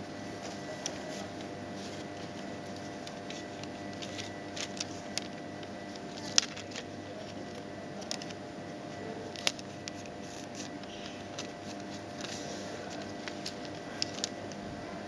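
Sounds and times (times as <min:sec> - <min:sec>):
electrical hum: 0:00.0 - 0:15.0
paper receipt crackling: 0:00.2 - 0:15.0
paper snap: 0:00.4 - 0:06.9, 0:09.3 - 0:14.6.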